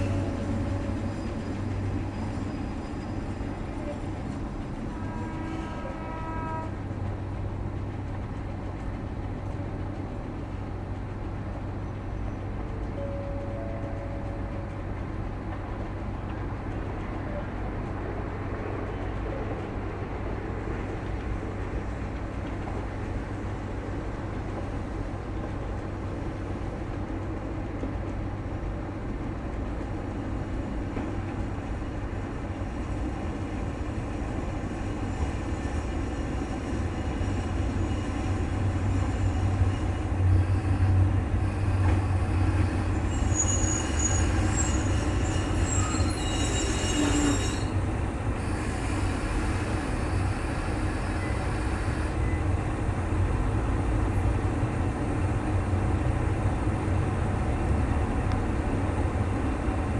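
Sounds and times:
high metallic squeal: 0:00.0 - 0:04.0, 0:42.8 - 0:47.8
diesel railcar engine rumble: 0:00.0 - 0:59.9.

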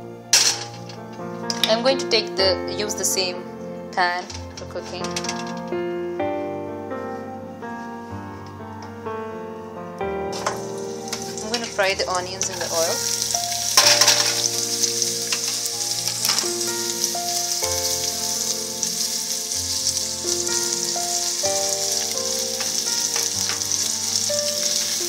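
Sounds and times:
onions sizzling in hot oil: 0:10.3 - 0:25.0.

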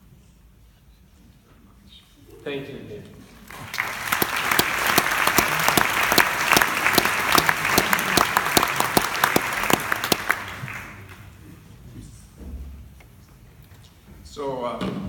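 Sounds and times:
audience applauding: 0:03.4 - 0:11.3.

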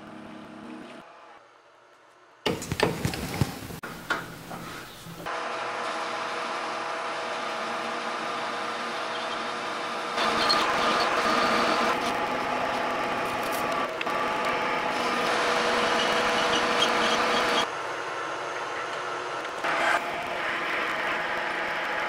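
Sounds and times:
lathe tool cutting metal: 0:05.3 - 0:17.7
metal lathe gearing whine: 0:05.3 - 0:22.0.

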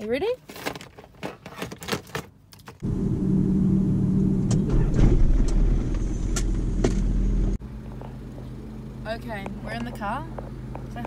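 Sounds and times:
van engine low rumble: 0:02.8 - 0:11.0.

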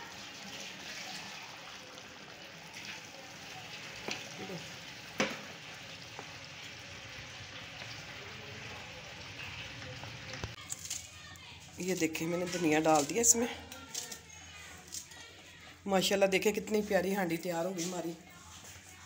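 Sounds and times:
curry sizzling in a metal pan: 0:00.0 - 0:10.7
wooden spatula knocking on pan: 0:05.2 - 0:05.5.

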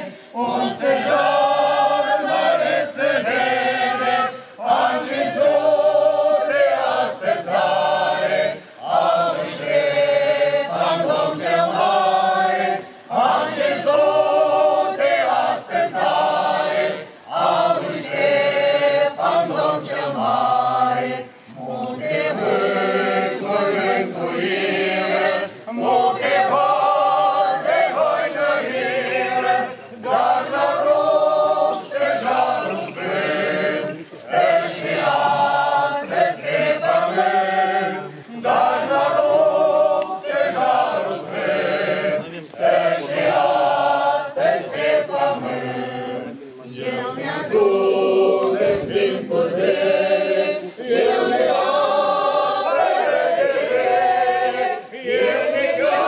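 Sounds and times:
church choir singing a cappella: 0:00.0 - 0:56.0.

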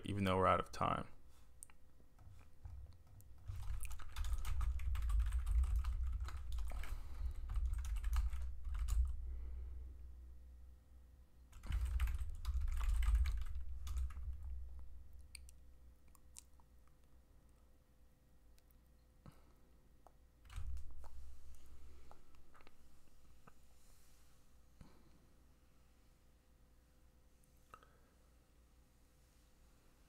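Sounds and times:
fast typing on keyboard: 0:02.3 - 0:09.2, 0:11.5 - 0:14.5.

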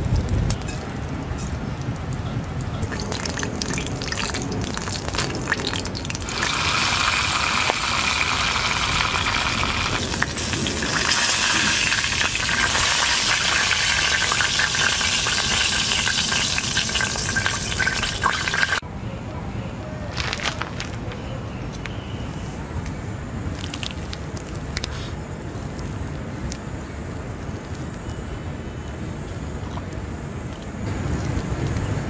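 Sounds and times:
fire crackling and popping: 0:00.0 - 0:18.8, 0:23.5 - 0:28.2
meat sizzling over a campfire: 0:00.0 - 0:18.8.

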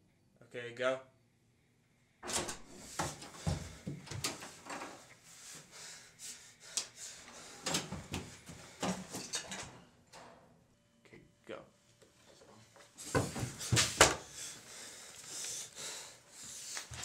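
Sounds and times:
knocks thumps and rustles: 0:02.9 - 0:04.8, 0:13.0 - 0:14.3.

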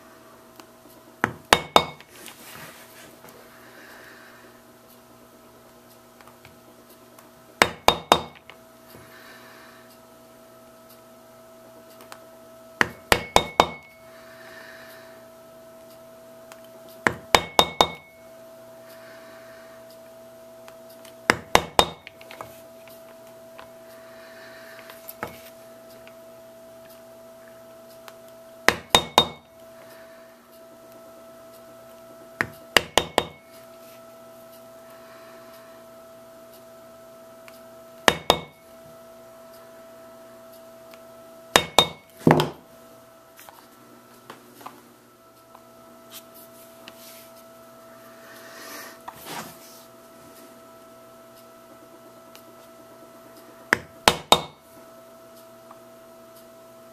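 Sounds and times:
mallet tapping leather stamp: 0:01.2 - 0:02.1, 0:07.6 - 0:08.5, 0:12.8 - 0:13.9, 0:17.0 - 0:18.1, 0:21.3 - 0:22.2, 0:28.7 - 0:29.5, 0:32.4 - 0:33.4, 0:38.1 - 0:38.6, 0:41.6 - 0:42.6, 0:53.7 - 0:54.6.

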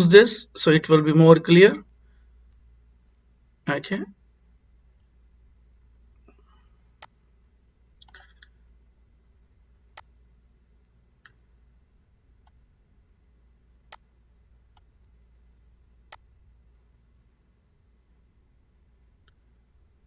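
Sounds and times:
faint low hum: 0:00.0 - 0:20.0
computer mouse clicking: 0:07.0 - 0:07.2, 0:08.0 - 0:08.5, 0:14.7 - 0:15.2.

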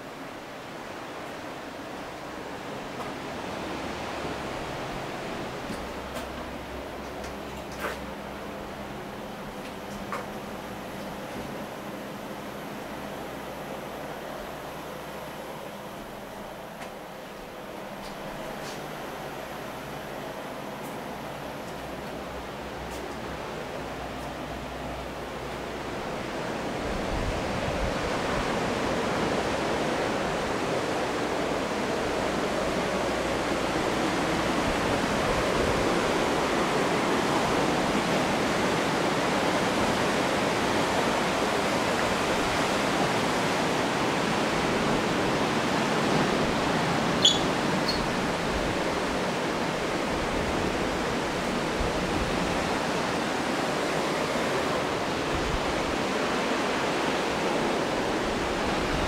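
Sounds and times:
ocean surf breaking: 0:18.5 - 0:59.0.

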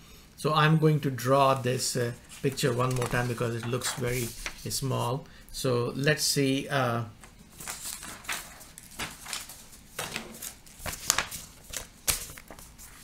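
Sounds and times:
paper rustling: 0:01.5 - 0:05.1, 0:07.3 - 0:13.0.

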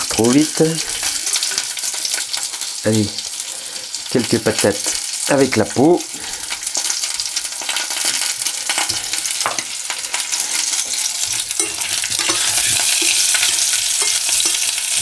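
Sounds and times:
bacon sizzling in hot oil: 0:00.0 - 0:15.0
spoon stirring in saucepan: 0:01.0 - 0:02.6, 0:07.7 - 0:15.0.

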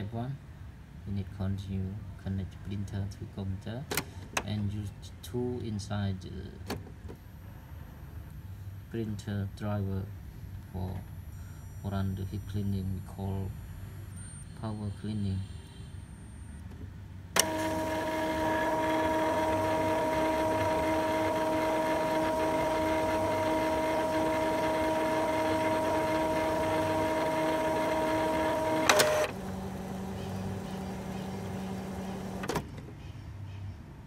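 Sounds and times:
low printer hum: 0:17.4 - 0:32.6
printer click: 0:17.4 - 0:32.6
printer motor whine: 0:17.4 - 0:32.6.

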